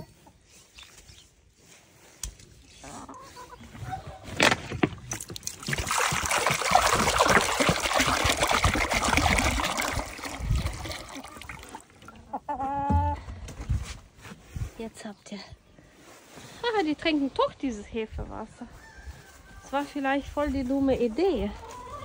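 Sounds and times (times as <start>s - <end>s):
chickens clucking: 2.6s - 4.4s, 10.9s - 13.5s, 20.8s - 22.0s.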